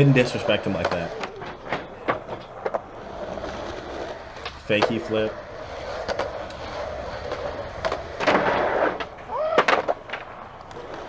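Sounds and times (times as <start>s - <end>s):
skateboard clattering: 0.0s - 11.0s
skateboard wheels rolling on concrete: 0.0s - 11.0s
skateboard pop and landing clacks: 7.8s - 10.9s.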